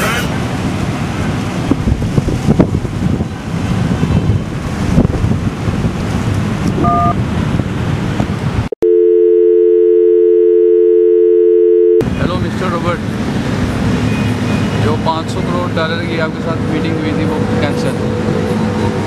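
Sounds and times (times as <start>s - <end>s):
broad rushing noise: 0.0s - 8.7s
telephone dial tone: 8.8s - 12.0s.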